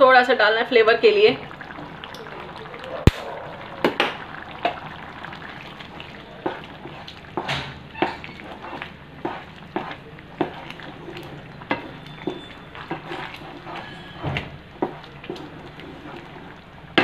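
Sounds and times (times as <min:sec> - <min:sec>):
wooden spatula scraping a pan: 0:05.7 - 0:16.6.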